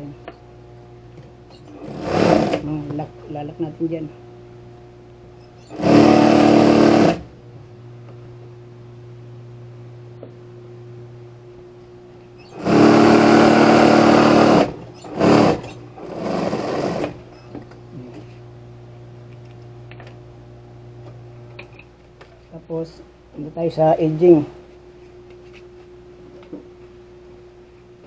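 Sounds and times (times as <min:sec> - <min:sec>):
sewing machine motor humming: 0:01.5 - 0:02.9, 0:05.5 - 0:07.3, 0:12.4 - 0:17.4
sewing machine stitching: 0:01.6 - 0:02.7, 0:05.6 - 0:07.3, 0:12.5 - 0:17.2.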